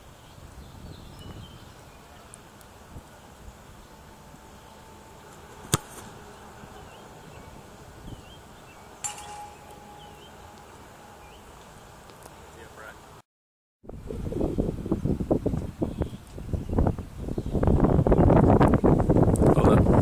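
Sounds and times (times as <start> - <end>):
light wind: 0.0 - 13.2, 13.9 - 20.0
foot kicking football: 5.3 - 6.2
bird chirps: 6.2 - 11.9
sharp clink with ring: 9.0 - 10.6.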